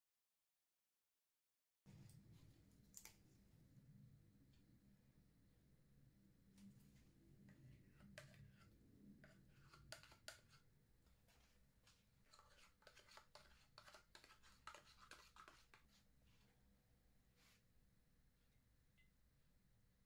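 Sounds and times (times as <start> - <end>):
metal spoon scraping plastic pots: 7.9 - 10.6, 12.3 - 15.9.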